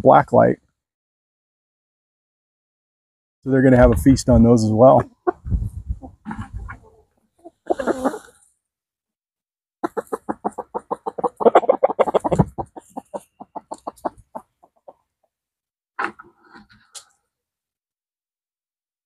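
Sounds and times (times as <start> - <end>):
hens clucking: 3.7 - 4.2, 4.9 - 8.3, 9.8 - 15.1.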